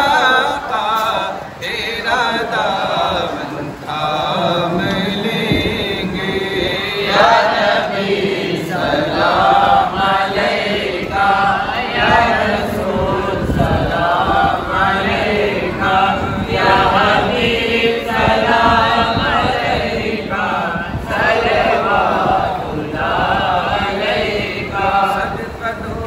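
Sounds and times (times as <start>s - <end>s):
men chanting in unison: 0.0s - 26.0s.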